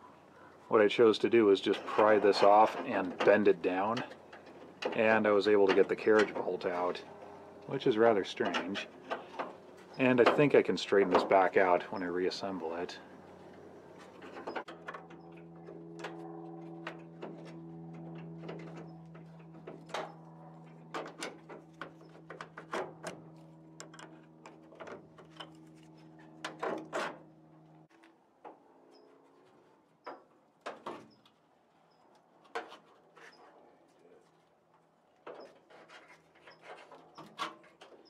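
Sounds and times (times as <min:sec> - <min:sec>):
machine hum: 0:11.8 - 0:27.9.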